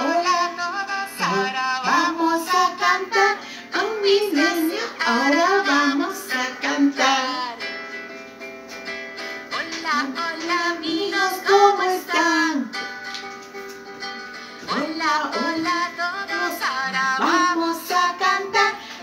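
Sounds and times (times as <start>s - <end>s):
person singing melody: 0.0s - 7.9s, 9.4s - 13.1s, 14.2s - 19.0s
plucked guitar: 0.0s - 19.0s.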